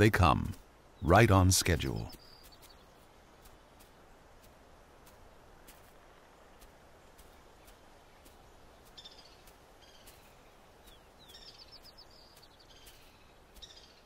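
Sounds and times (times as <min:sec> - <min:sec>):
high bird chirps: 0:02.0 - 0:03.0, 0:08.9 - 0:14.0.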